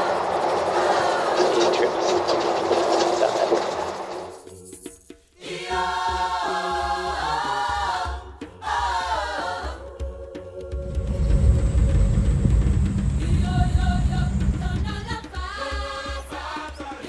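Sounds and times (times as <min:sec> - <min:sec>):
music with voices singing: 0:00.0 - 0:03.8, 0:04.4 - 0:17.0
truck engine: 0:00.0 - 0:04.5, 0:10.8 - 0:15.3
wind noise: 0:10.8 - 0:15.4.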